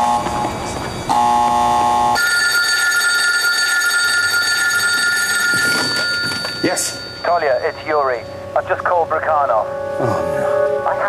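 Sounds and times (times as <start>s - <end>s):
telephone ringing: 1.1s - 9.8s.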